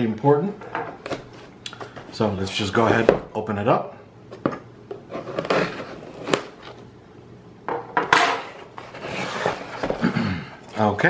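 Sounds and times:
knife cutting cardboard seal: 5.1 - 6.6.

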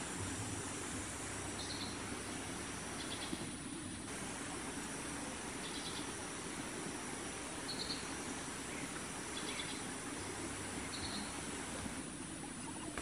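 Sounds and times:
steady forest hiss: 0.0 - 13.0.

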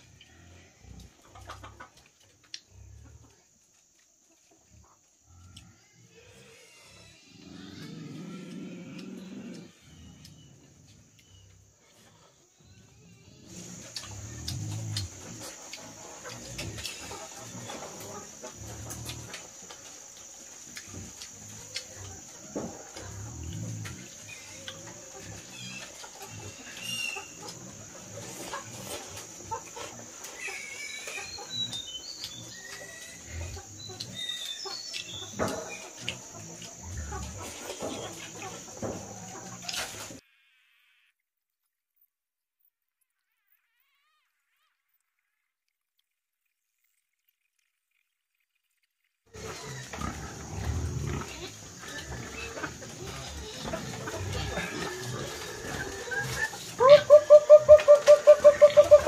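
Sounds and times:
chickens clucking: 0.0 - 6.5, 7.3 - 40.2, 49.3 - 59.0
high-pitched hiss: 0.0 - 41.1.

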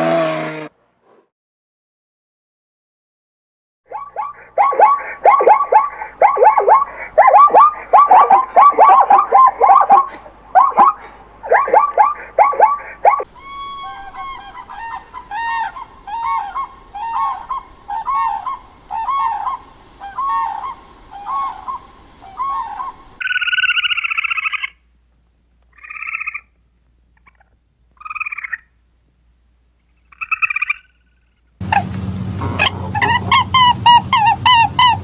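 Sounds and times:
crane trumpeting calls: 3.9 - 24.8, 29.9 - 35.0
short pitched honking calls: 31.6 - 35.0.

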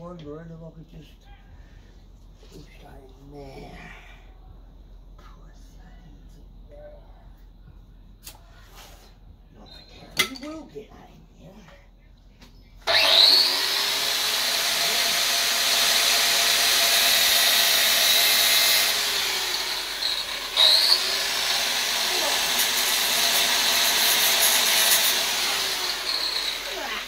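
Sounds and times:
hydraulic pump motor whining: 12.8 - 27.0
loud hiss: 13.1 - 27.0.

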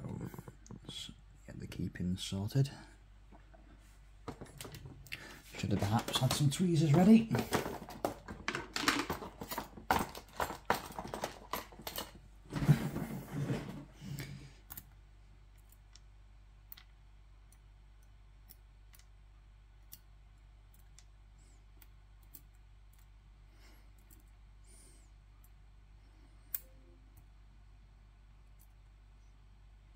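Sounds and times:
lock pins clicking and tapping: 5.9 - 12.2.

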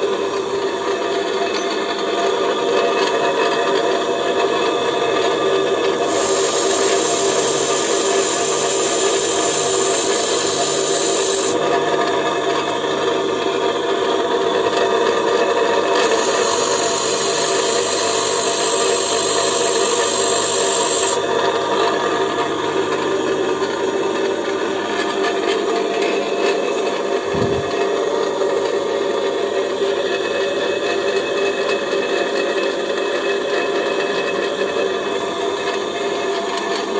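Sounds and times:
bench grinder running: 0.0 - 36.9
tool grinding hiss: 5.9 - 11.6, 15.7 - 21.4.

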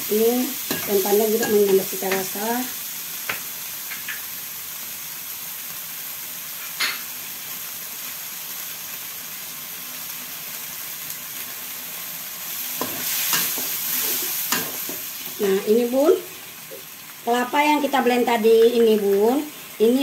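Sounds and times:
paste sizzling in oil: 0.0 - 20.0.

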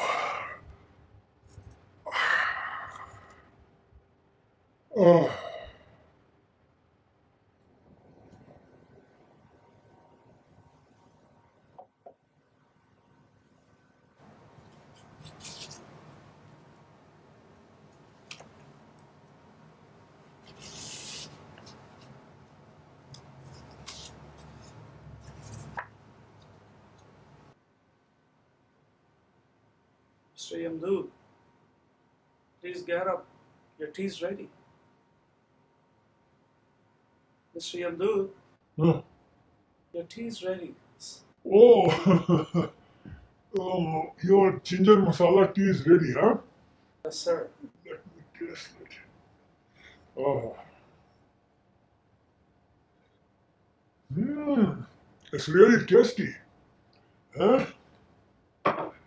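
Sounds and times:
man sighing: 2.1 - 3.4, 4.9 - 5.9
card sliding on card: 20.4 - 22.1, 23.4 - 25.9.

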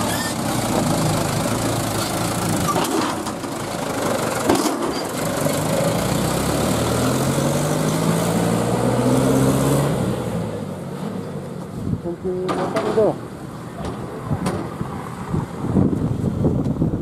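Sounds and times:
diesel truck engine accelerating: 0.0 - 12.4.

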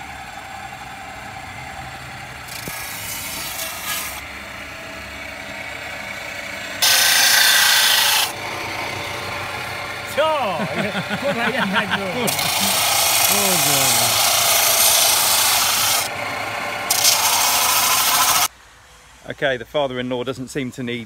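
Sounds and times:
circular saw running: 0.0 - 18.5
saw blade grinding through brick: 2.4 - 4.2, 6.8 - 18.5.

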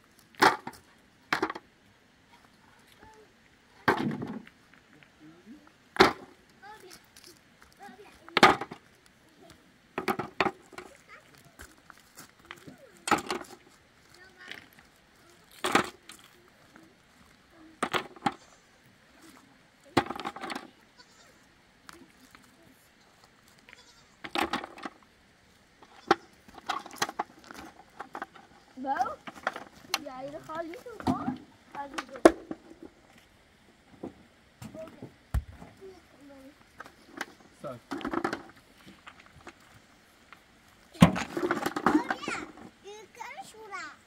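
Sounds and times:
stones clattering in metal bucket: 0.3 - 1.6, 3.8 - 4.5, 8.3 - 8.8, 10.0 - 11.0, 13.0 - 13.7, 15.6 - 16.2, 17.8 - 18.4, 19.9 - 20.7, 24.2 - 25.0, 25.9 - 33.0, 36.8 - 39.6, 41.0 - 42.7.

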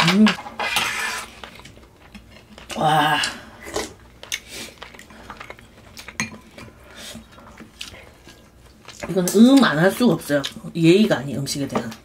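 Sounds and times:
utensils clinking against a bowl: 3.6 - 6.8.

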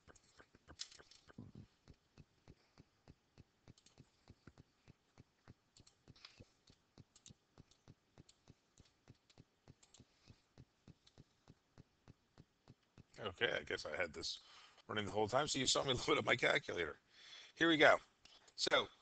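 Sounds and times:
scattered clicks: 0.0 - 13.2
faint steady ticking: 0.0 - 19.0.

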